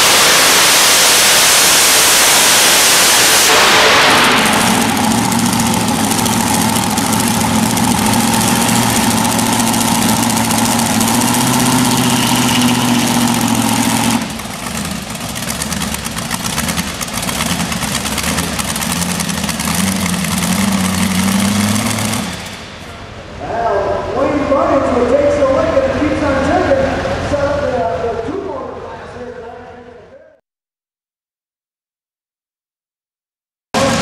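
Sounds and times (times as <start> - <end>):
hiss: 0.0 - 4.5
tractor engine idling loudly: 0.0 - 27.8.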